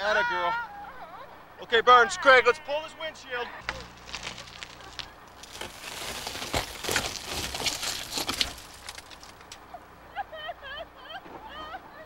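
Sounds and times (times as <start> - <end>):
shattered windshield crunching: 3.6 - 9.6.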